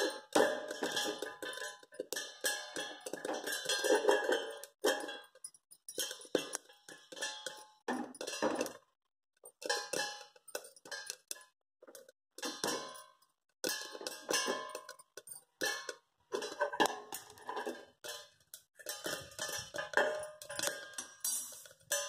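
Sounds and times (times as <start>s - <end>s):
kernels popping against metal lid: 13.7s - 22.0s.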